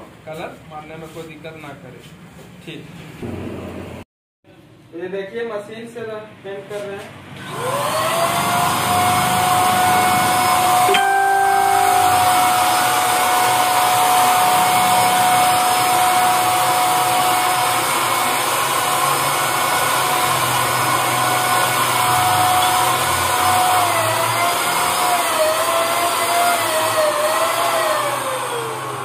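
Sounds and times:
spray paint gun motor whine: 7.4 - 29.0.

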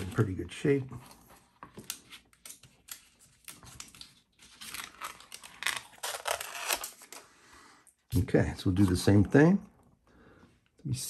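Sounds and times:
paper backing crinkling and rustling: 0.0 - 7.3.

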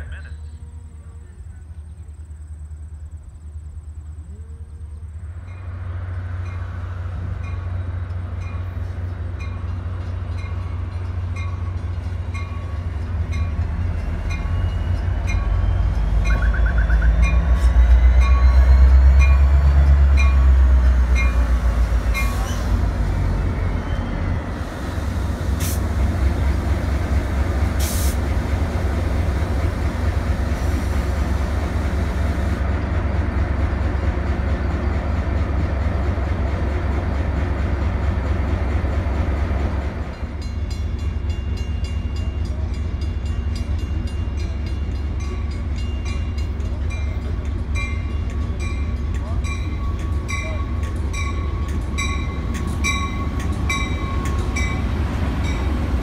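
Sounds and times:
diesel locomotive engine rumble: 0.0 - 56.0
train bell dinging: 6.4 - 24.4, 40.1 - 56.0
air hisses: 27.7 - 28.2.

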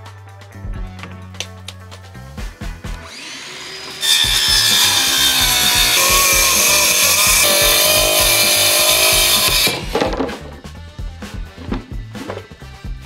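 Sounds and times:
circular saw cutting plywood: 3.0 - 10.1.

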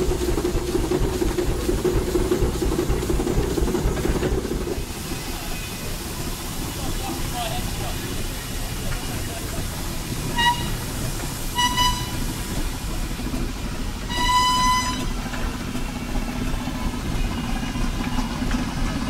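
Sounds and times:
steam engines rumbling: 0.0 - 19.0
steam whistle blasts: 10.3 - 12.4, 14.1 - 15.2.

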